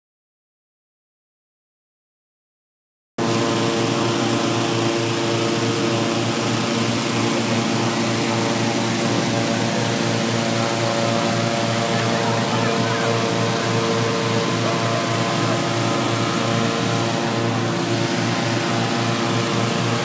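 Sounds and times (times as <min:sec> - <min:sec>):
balloon inflator fans running: 0:03.2 - 0:20.0.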